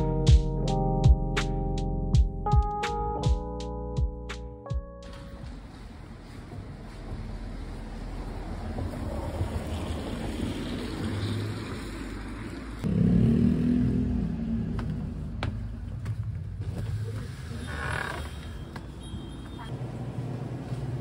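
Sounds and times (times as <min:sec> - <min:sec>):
traffic rumble: 0:05.0 - 0:21.0.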